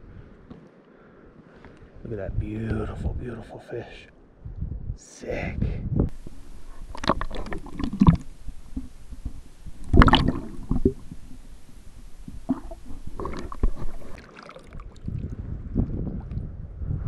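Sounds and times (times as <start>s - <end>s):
water splashing and sloshing: 6.1s - 15.5s.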